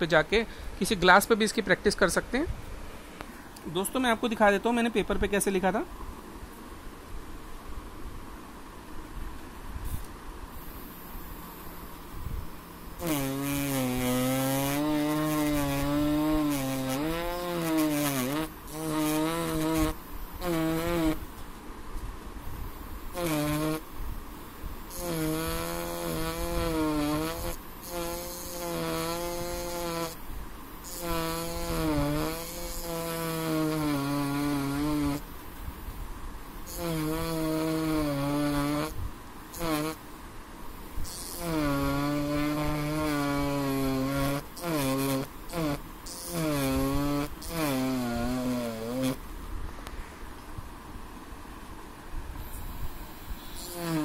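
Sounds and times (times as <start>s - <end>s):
engraver pen buzzing: 10.5s - 21.4s, 23.1s - 23.9s, 24.8s - 30.2s, 30.8s - 35.3s, 36.6s - 40.0s, 41.0s - 49.2s, 52.4s - 54.0s.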